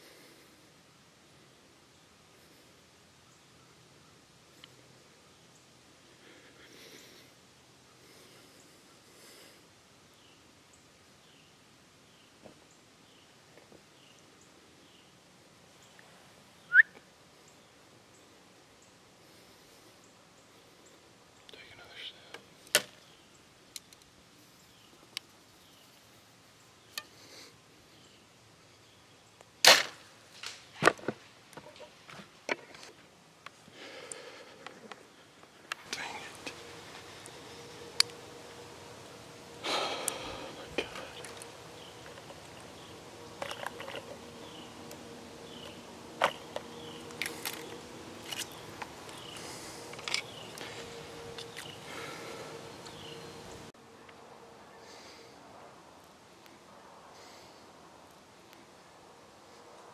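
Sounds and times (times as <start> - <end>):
faint steady hum: 0.0 - 59.9
short high chirps: 16.7 - 17.0
sharp clicks and knocks of gear: 23.7 - 24.1, 45.6 - 50.7
bow shot crack: 29.6 - 30.6.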